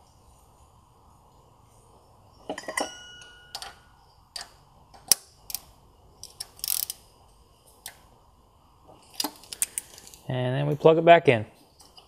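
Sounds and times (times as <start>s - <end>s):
metal clinking: 2.4s - 4.0s
ratchet clicking: 5.1s - 7.0s.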